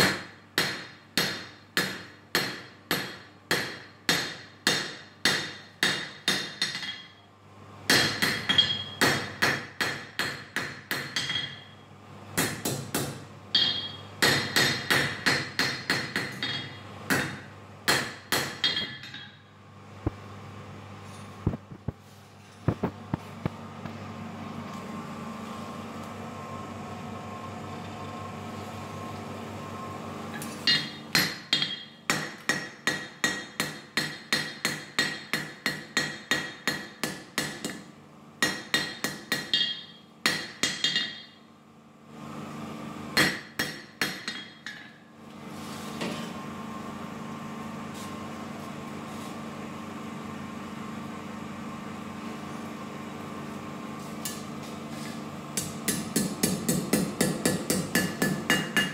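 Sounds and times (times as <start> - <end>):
steady forge hum: 0.0 - 58.9
hammer ringing on anvil: 7.9 - 11.8, 13.6 - 19.5, 30.6 - 37.5, 38.4 - 41.4, 55.9 - 58.9.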